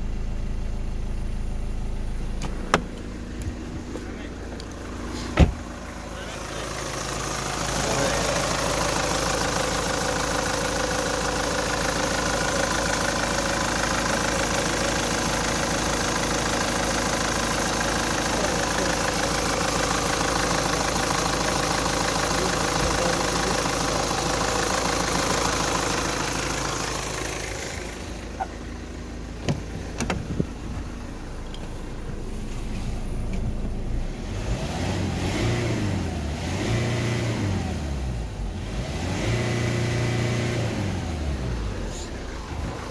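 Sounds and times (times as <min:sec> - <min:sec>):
diesel engine idling: 0:00.0 - 0:36.3, 0:39.6 - 0:42.9
engine revving: 0:32.4 - 0:42.9.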